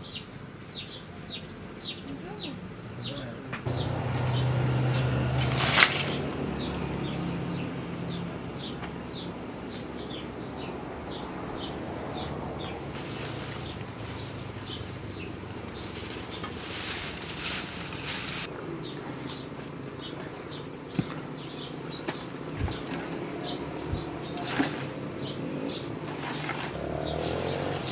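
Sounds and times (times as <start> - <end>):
bird chirping: 0.0 - 5.2, 6.0 - 16.5
outdoor ambience: 0.0 - 27.9
dry brushwood rustling: 3.6 - 6.4, 12.6 - 18.5
dry branches knocking: 5.3 - 6.3, 15.6 - 18.5.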